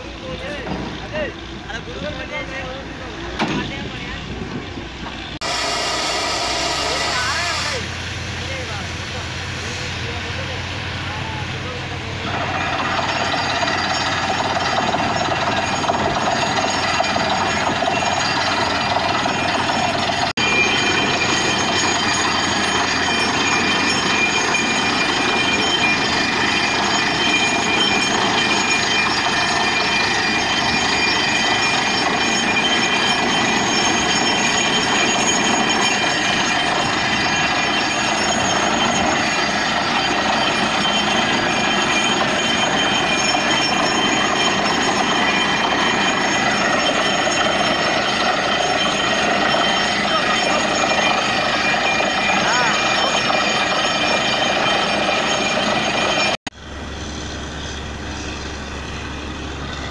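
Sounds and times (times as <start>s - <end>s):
drilling rig running: 0.0s - 59.9s
air hammer pounding: 5.4s - 7.9s
compressed air blowing slurry: 5.4s - 11.0s.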